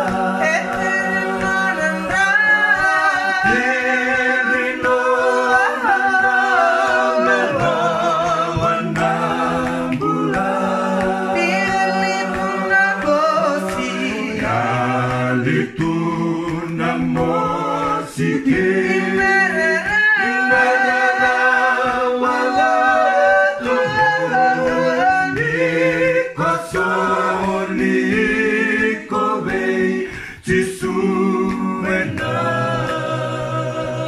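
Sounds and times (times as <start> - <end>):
voices singing in harmony: 0.0 - 34.0.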